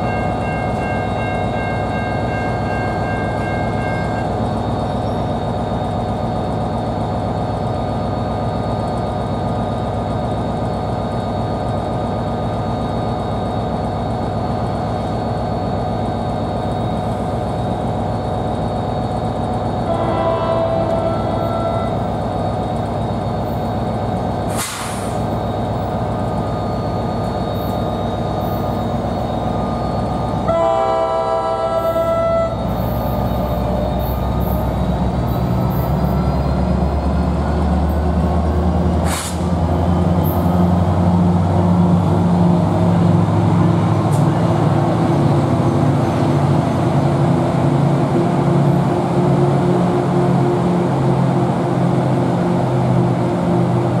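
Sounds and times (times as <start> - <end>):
train horn: 0.0 - 4.3, 19.8 - 22.1, 30.4 - 34.1
locomotive engine drone: 0.0 - 54.0.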